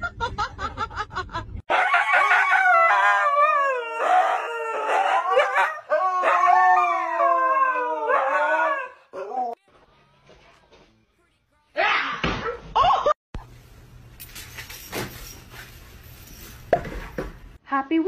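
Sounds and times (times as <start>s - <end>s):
husky howling: 1.7s - 9.6s.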